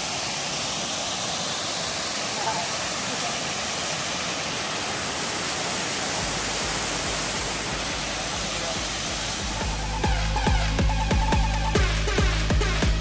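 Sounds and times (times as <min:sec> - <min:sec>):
electronic dance music: 0:06.3 - 0:13.0.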